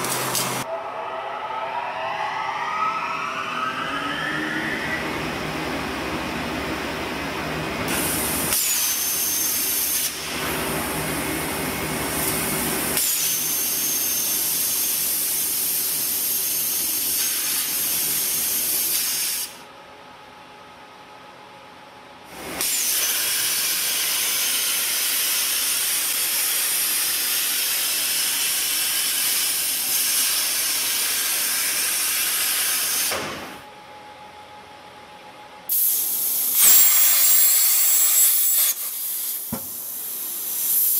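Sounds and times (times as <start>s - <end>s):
low hum: 0.6s - 8.4s
faint high whine: 0.7s - 7.7s
cutting torch gas jet hissing: 35.7s - 40.9s.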